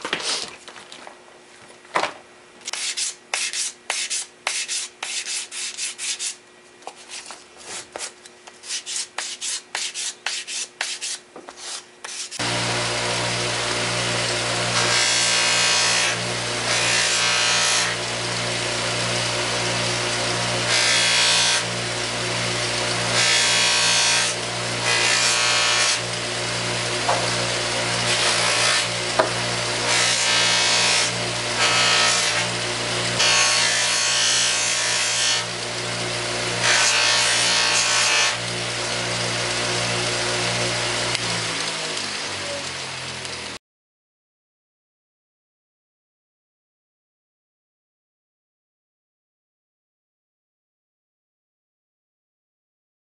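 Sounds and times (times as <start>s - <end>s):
wood rubbing on buffing wheel: 8.6s - 41.2s
bench buffer motor humming: 12.0s - 43.6s.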